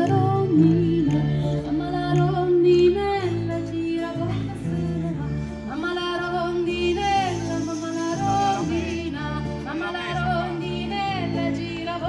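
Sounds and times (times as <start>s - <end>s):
person singing: 0.0s - 12.0s
strummed acoustic guitar: 3.8s - 12.0s
button accordion: 4.5s - 12.0s.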